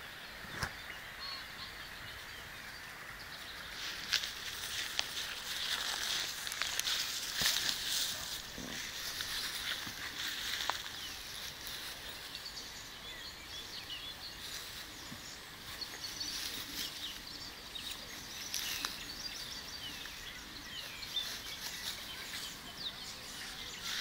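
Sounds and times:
small birds twittering: 0.0 - 24.0
dog rolling on dry grass: 3.6 - 12.6.

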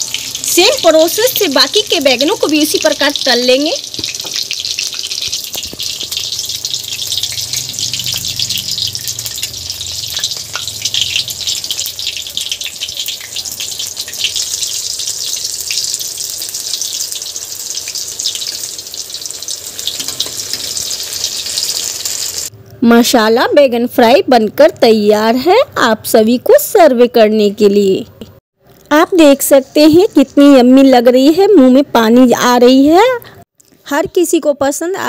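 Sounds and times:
vegetables sizzling in hot oil: 0.0 - 22.5, 28.9 - 32.7.

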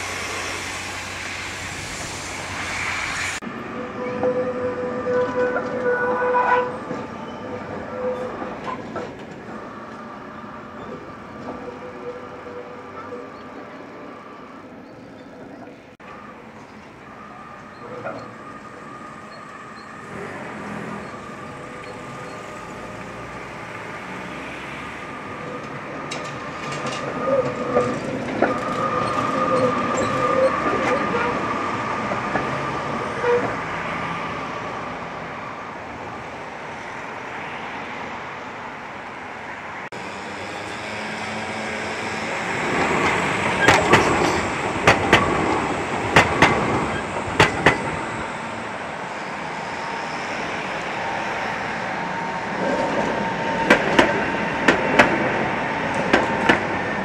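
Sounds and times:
city traffic: 0.0 - 57.0
tram whine: 0.0 - 57.0
tram wheels clacking on rails: 3.8 - 13.9, 25.0 - 33.8, 40.6 - 51.2, 52.0 - 57.0.

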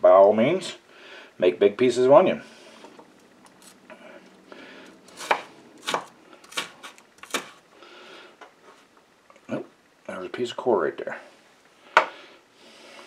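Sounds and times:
knife chopping on wooden board: 5.1 - 7.6.

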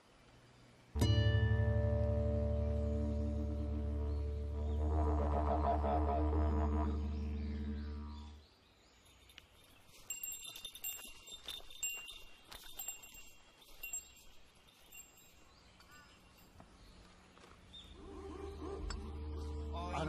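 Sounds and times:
small chimes tinkling: 8.8 - 16.6.

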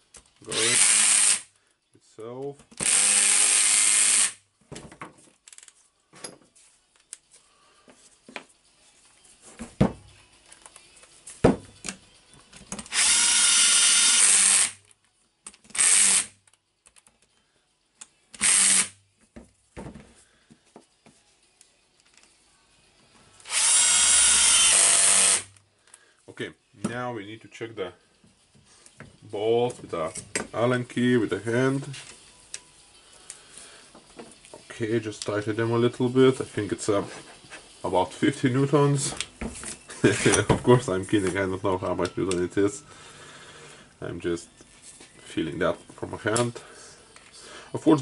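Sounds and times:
cordless drill running: 0.5 - 1.4, 2.8 - 4.4, 12.9 - 14.8, 15.8 - 16.3, 18.4 - 19.0, 23.5 - 25.5.

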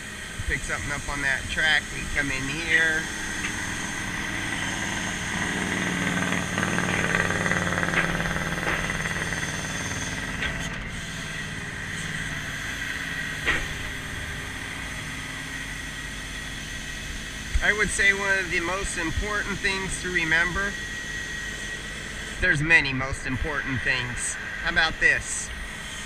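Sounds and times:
high hydraulic whine: 0.0 - 26.0
truck engine and hydraulics running: 0.0 - 26.0.

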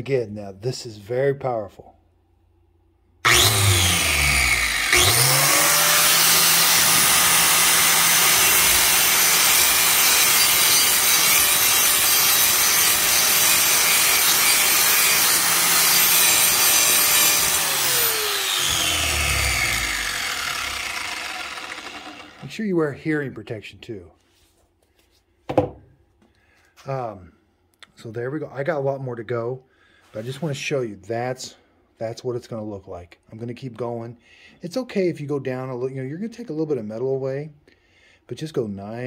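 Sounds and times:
angle grinder grinding metal: 3.3 - 22.6.

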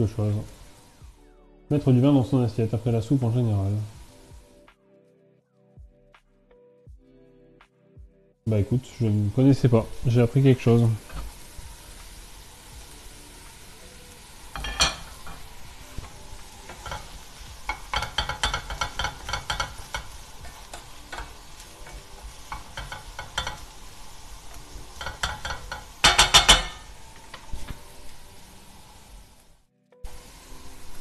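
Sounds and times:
onions sizzling in a pan: 0.0 - 4.7, 8.5 - 31.0
wooden spatula scraping a pan: 14.4 - 28.2.

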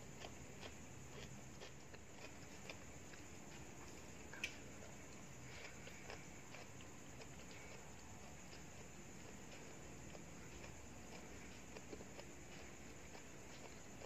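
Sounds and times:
quiet chewing: 0.0 - 14.0.

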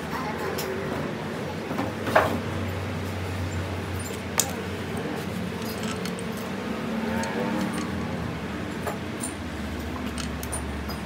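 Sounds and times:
machine hum: 2.4 - 11.0
metal tools clinking: 3.9 - 11.0.

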